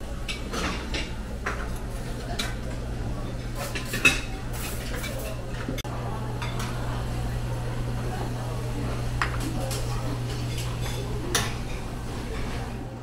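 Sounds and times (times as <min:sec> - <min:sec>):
metal utensils clinking on pans: 0:00.3 - 0:05.8, 0:09.1 - 0:12.7.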